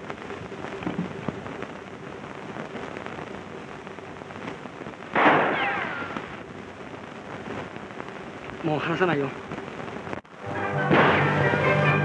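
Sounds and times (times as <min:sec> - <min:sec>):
steady hiss: 0:00.0 - 0:12.0
sudden loud noise burst: 0:05.1 - 0:06.5, 0:10.8 - 0:12.0.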